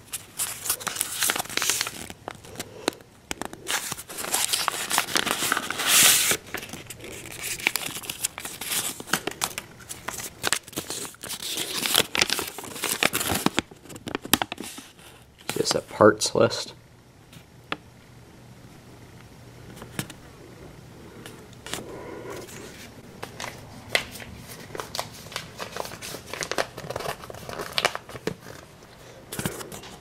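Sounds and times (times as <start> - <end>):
paper rustling and crinkling: 0.0 - 15.8, 22.4 - 30.0.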